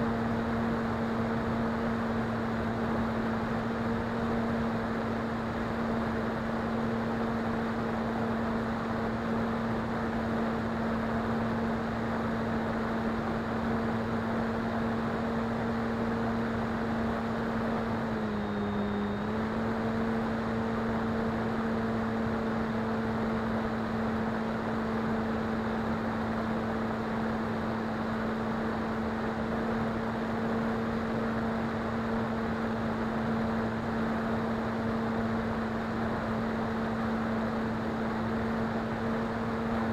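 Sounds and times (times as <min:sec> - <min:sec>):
electric motor and propeller humming: 0:13.6 - 0:23.7.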